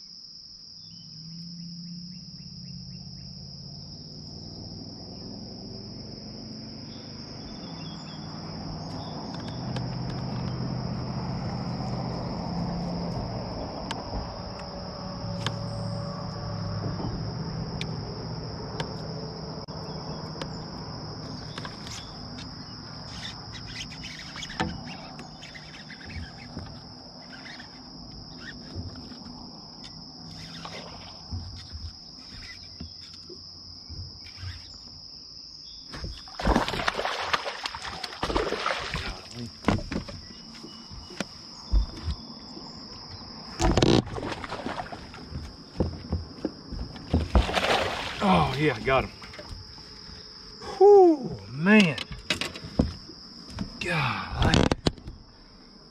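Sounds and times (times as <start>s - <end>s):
insects droning: 0.0s - 55.9s.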